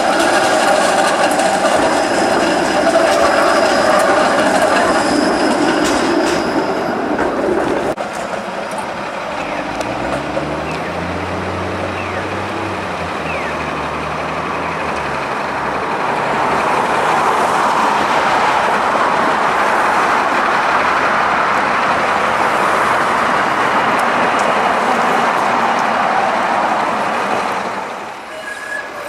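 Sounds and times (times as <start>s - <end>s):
bus engine running: 6.9s - 28.3s.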